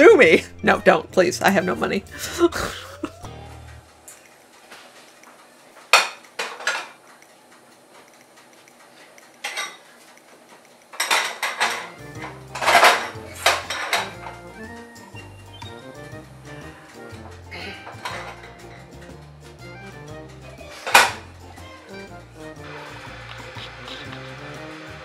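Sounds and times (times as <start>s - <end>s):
saucepans clanking on metal burners: 3.7s - 25.0s.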